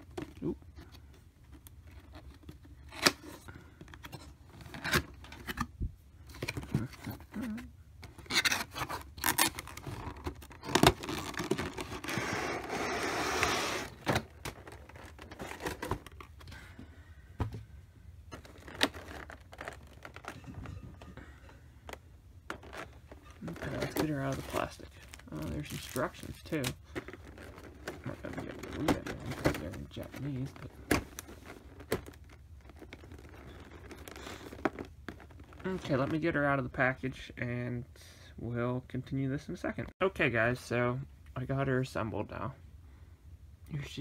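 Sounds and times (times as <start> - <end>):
plastic packaging rustling: 0.0 - 16.5, 18.2 - 36.3.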